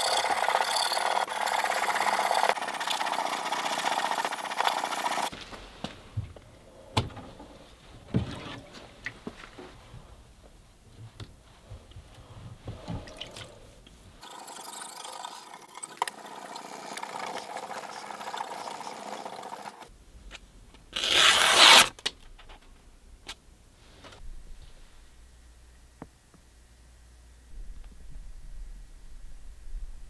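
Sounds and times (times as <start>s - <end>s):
paper tearing: 20.9s - 22.0s.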